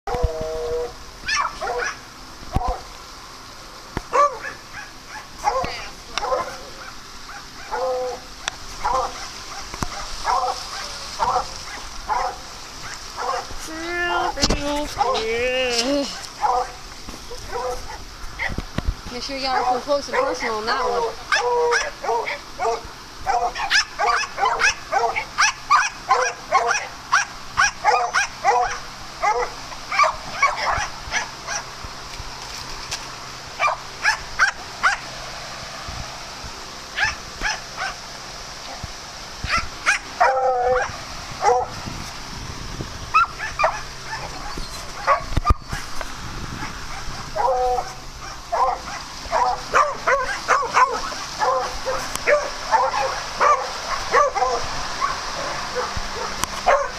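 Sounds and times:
dogs barking: 0:01.2 - 0:02.9, 0:04.1 - 0:13.6, 0:15.0 - 0:15.3, 0:16.1 - 0:18.6, 0:19.4 - 0:31.8, 0:33.6 - 0:35.1, 0:37.0 - 0:38.1, 0:39.4 - 0:41.8, 0:43.1 - 0:45.9, 0:46.6 - 0:56.9.

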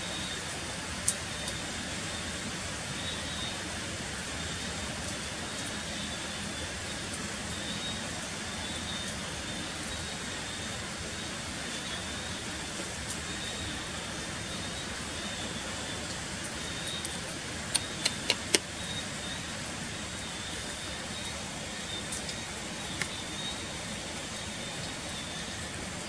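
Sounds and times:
falling rain hiss: 0:00.0 - 0:26.0
sharp clicks: 0:17.0 - 0:18.7.

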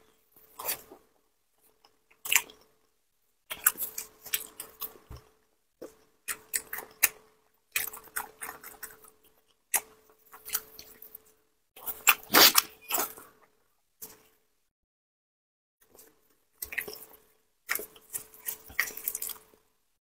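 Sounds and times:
wet chewing and smacking: 0:00.4 - 0:14.3, 0:15.8 - 0:19.7
biting into meat: 0:11.8 - 0:13.2.

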